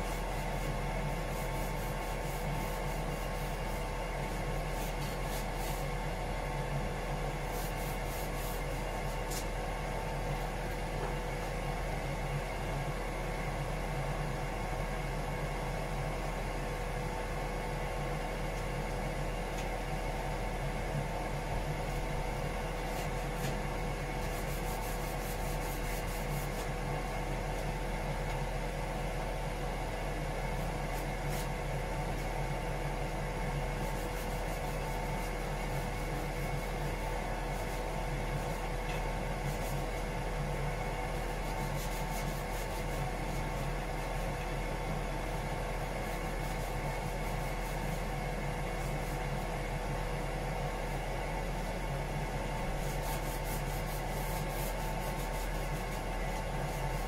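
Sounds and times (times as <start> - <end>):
hand sanding strokes: 0.0 - 5.9, 7.5 - 9.5, 24.2 - 26.8, 30.6 - 31.6, 33.8 - 40.1, 41.1 - 44.3, 45.3 - 49.6, 52.6 - 57.0
engine-room machinery hum: 0.0 - 57.0.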